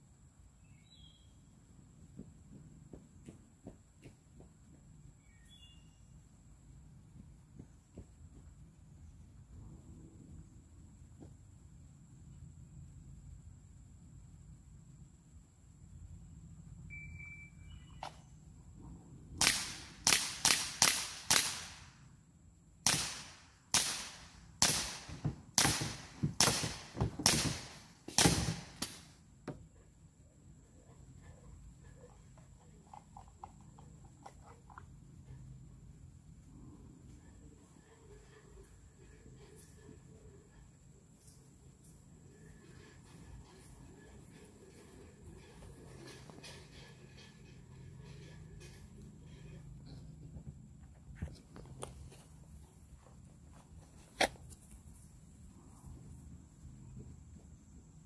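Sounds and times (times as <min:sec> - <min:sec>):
faint bird chirps: 0:00.5 - 0:01.6, 0:05.2 - 0:06.3, 0:16.8 - 0:18.6
faint low rumble: 0:06.0 - 0:19.4
bb pistol shots: 0:19.4 - 0:21.9, 0:22.8 - 0:29.0.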